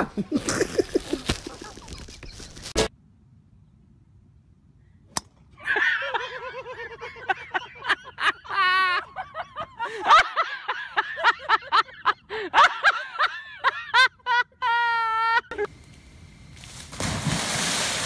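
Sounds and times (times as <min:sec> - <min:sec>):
hearty laughter: 0:00.0 - 0:02.3, 0:05.7 - 0:15.7.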